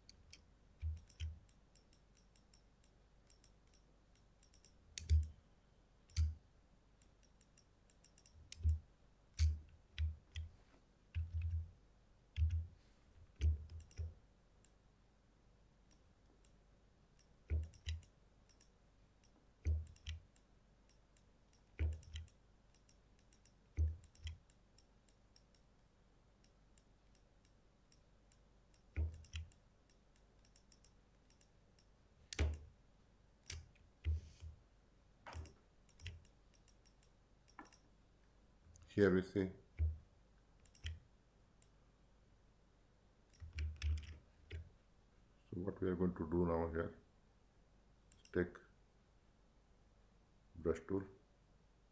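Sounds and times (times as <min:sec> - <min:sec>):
computer mouse clicking: 0:00.0 - 0:05.4, 0:06.1 - 0:06.4, 0:07.0 - 0:08.8, 0:09.4 - 0:10.5, 0:11.1 - 0:11.6, 0:12.4 - 0:14.8, 0:17.2 - 0:25.7, 0:26.4 - 0:32.7, 0:33.4 - 0:34.6, 0:35.3 - 0:37.9, 0:40.6 - 0:41.0, 0:43.3 - 0:44.7, 0:48.1 - 0:48.4.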